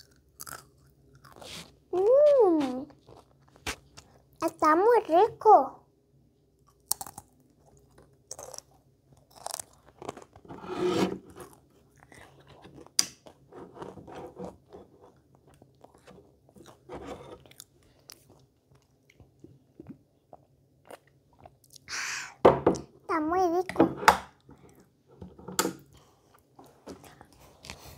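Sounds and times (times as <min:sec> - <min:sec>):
child chewing sweets: 0:00.0 - 0:04.6, 0:06.5 - 0:10.5, 0:11.2 - 0:22.4, 0:25.8 - 0:27.9.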